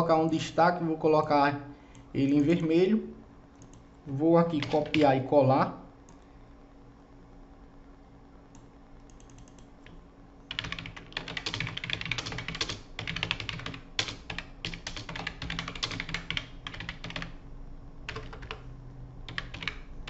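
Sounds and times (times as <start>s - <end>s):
typing on a computer keyboard: 4.6s - 5.1s, 9.0s - 17.4s, 18.1s - 18.7s, 19.3s - 19.9s.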